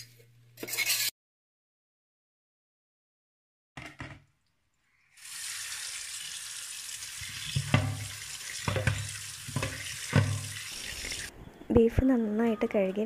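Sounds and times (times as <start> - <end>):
tap water splashing: 7.0 - 11.3
dull knocks of colander: 7.5 - 10.6.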